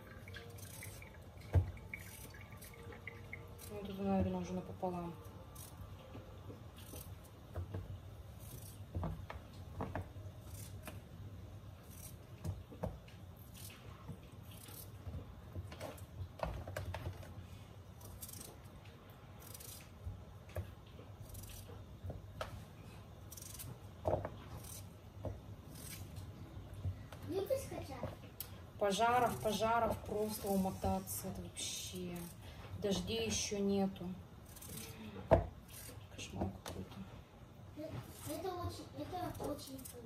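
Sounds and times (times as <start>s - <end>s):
low steady hum: 0.0s - 40.0s
knife cutting potatoes: 10.4s - 11.1s, 19.4s - 20.0s, 21.2s - 21.9s, 25.6s - 26.3s, 34.4s - 36.8s.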